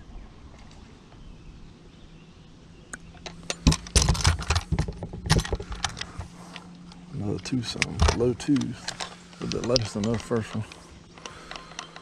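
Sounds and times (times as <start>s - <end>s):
fishing gear jangling and clicking: 3.2s - 12.0s.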